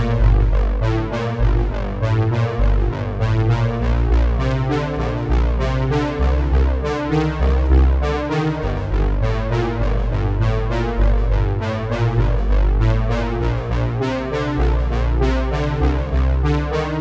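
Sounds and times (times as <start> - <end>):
synthesizer music with beat and bass: 0.0 - 17.0.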